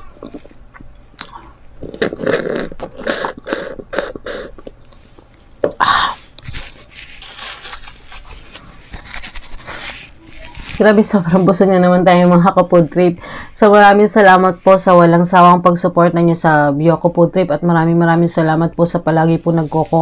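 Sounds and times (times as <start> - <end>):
soft chewing: 0.0 - 5.5
person gulping and crunching ice: 0.1 - 6.9
sharp mouth sound: 1.2 - 4.8.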